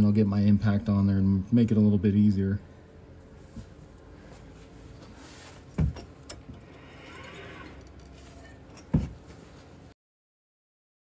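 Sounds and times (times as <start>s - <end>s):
dull knocks of metal parts: 5.7s - 6.7s, 8.0s - 9.4s.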